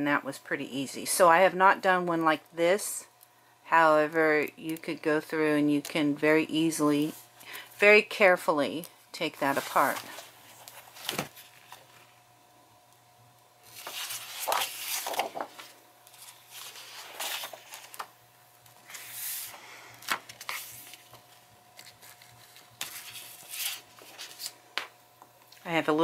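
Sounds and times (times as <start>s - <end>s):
paper pages rustling and sliding: 9.4s - 12.1s, 13.6s - 18.1s, 18.8s - 24.9s.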